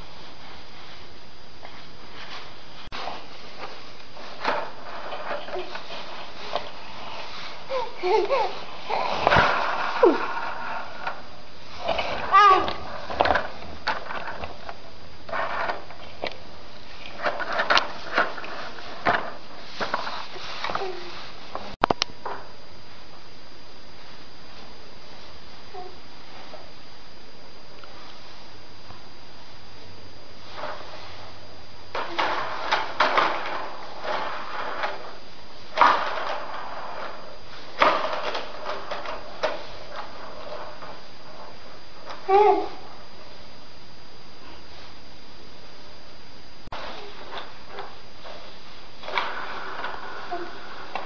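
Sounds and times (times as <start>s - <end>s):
baby walker rolling on tiles: 3.0s - 21.3s, 32.0s - 42.6s, 49.0s - 51.0s.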